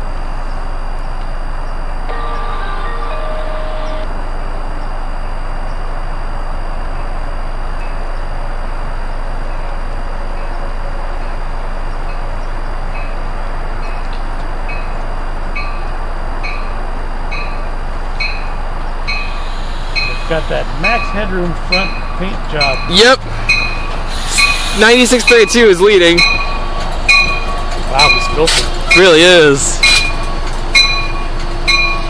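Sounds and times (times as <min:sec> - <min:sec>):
train wheels rumbling on rails: 0:08.9 - 0:32.0
bell dinging: 0:20.0 - 0:24.5, 0:25.2 - 0:32.0.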